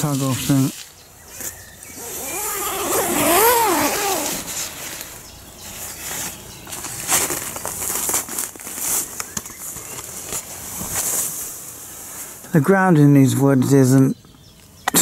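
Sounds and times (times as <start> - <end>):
tent fabric rustling: 0.0 - 12.4.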